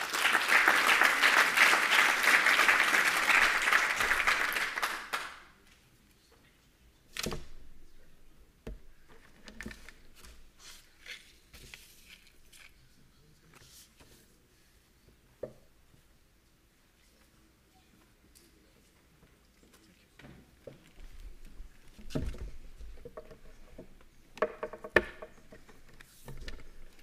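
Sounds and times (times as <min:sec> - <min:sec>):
audience applauding: 0:00.0 - 0:05.5
quiet knocks and clicks: 0:20.2 - 0:27.0.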